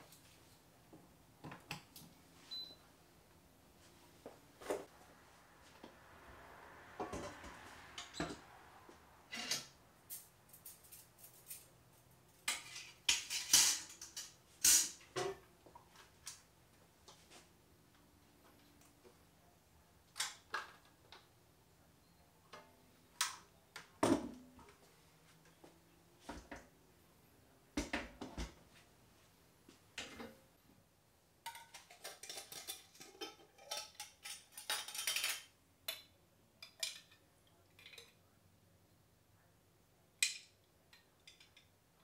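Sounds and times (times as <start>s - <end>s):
glass jar and spoon clatter: 31.5s - 36.1s.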